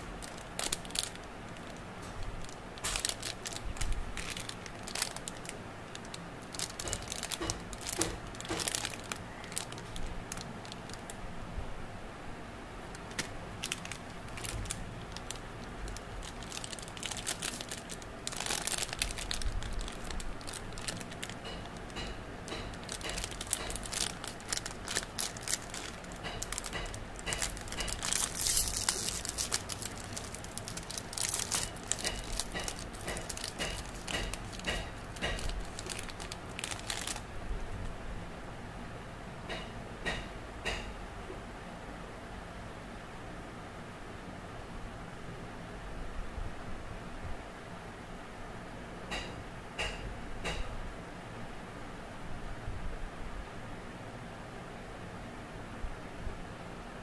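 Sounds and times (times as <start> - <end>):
plastic wrappers crinkling: 0.0 - 11.2, 12.9 - 37.4
wrapper tearing: 0.0 - 11.2, 12.9 - 37.3.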